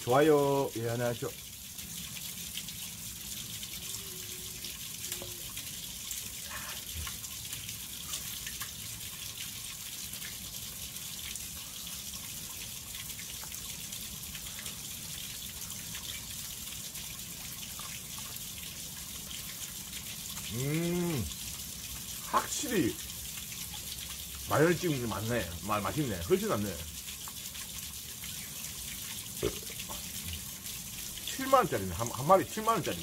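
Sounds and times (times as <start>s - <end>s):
running water rushing: 0.0s - 33.0s
man humming: 20.5s - 21.3s.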